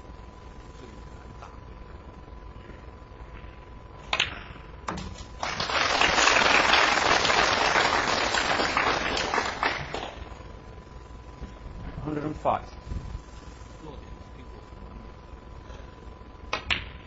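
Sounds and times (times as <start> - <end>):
audience applauding: 5.4 - 10.4.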